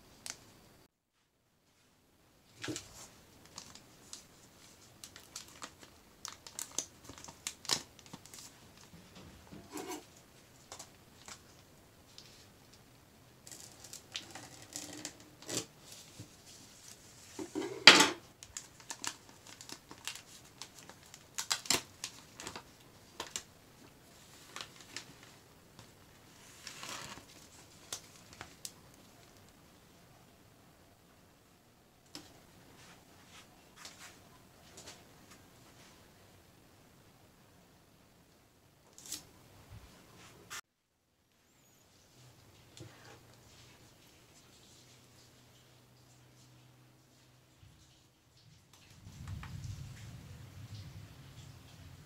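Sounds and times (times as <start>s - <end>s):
packaging crinkling and rustling: 2.5s - 12.4s, 13.4s - 29.5s.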